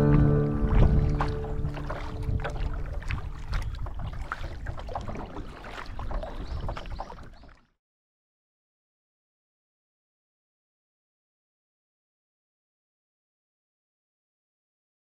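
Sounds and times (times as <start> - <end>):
guitar music: 0.0 - 2.7
water drips: 0.0 - 7.7
water lapping against hull: 0.0 - 7.8.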